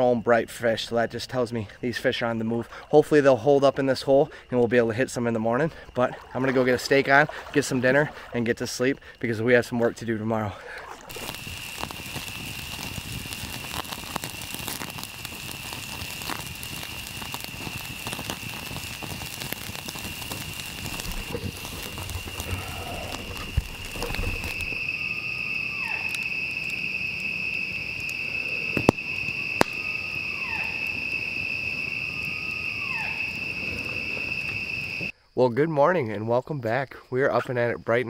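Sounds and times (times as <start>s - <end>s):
night insects chorus: 0.0s - 38.0s
campfire crackling and popping: 10.7s - 35.1s
short falling animal call: 20.9s - 24.8s.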